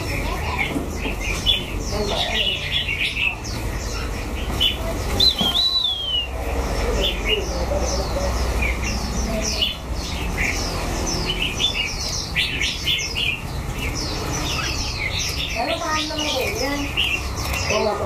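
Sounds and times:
songbirds chirping: 0.0 - 18.0
whistled bird note: 5.2 - 6.4.

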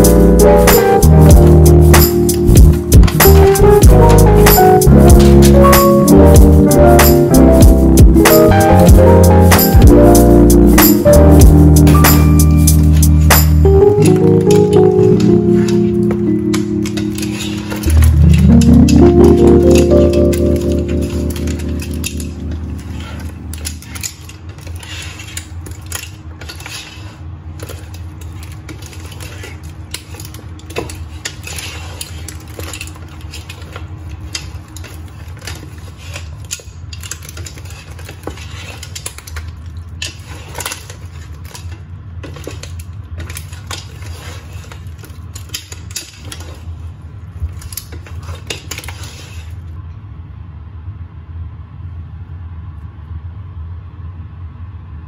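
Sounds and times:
low hum: 0.0 - 24.1.

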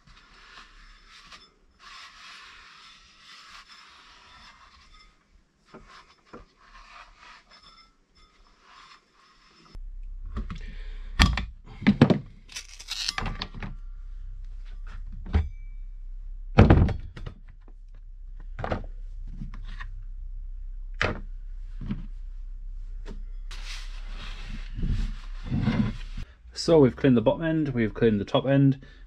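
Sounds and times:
low steady hum: 9.7 - 29.0
scraping: 17.0 - 26.3.

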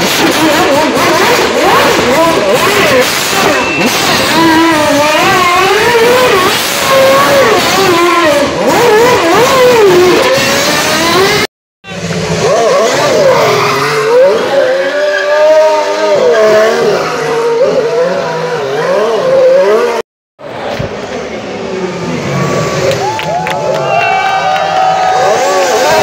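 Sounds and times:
spinning tyres squealing: 0.0 - 20.0
race car engines revving: 0.0 - 26.0.

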